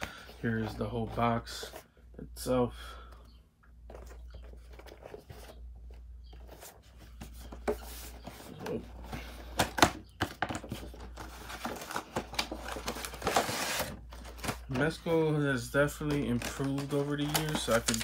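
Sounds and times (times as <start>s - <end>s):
cardboard and plastic rustling: 3.8s - 18.0s.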